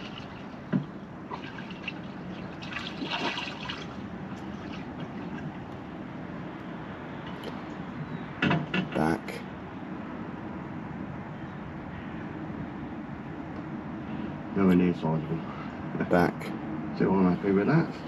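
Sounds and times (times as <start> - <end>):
water sloshing and splashing: 0.0 - 6.0.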